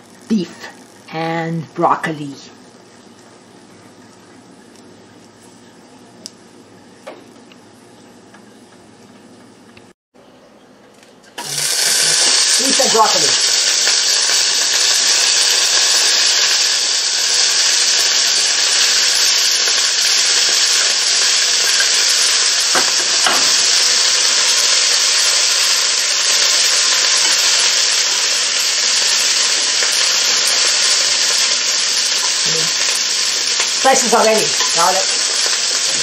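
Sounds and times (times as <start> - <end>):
food sizzling in a frying pan: 0.0 - 3.1, 11.4 - 36.0.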